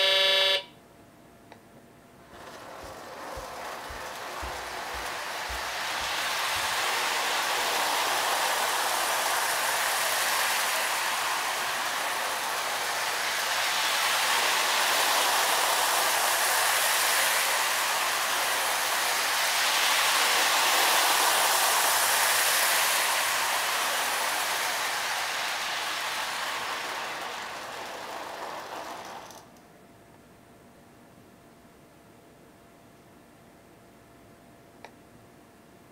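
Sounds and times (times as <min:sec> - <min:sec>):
wheels rumbling on rails: 0:02.0 - 0:29.6
model train motor whirring: 0:02.2 - 0:29.6.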